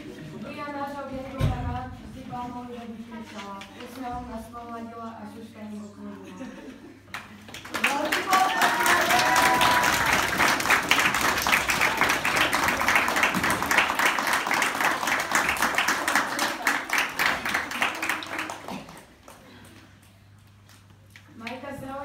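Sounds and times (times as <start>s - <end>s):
people clapping: 7.1s - 21.7s.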